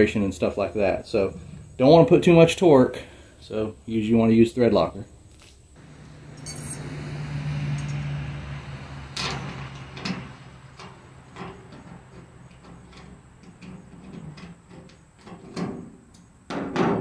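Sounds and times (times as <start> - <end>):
low hum with rushing noise: 5.8 - 11.4.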